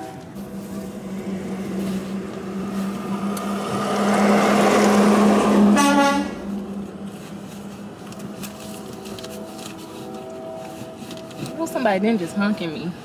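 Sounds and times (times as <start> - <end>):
vehicle passing: 0.0 - 13.0
car horn toot: 4.2 - 6.8.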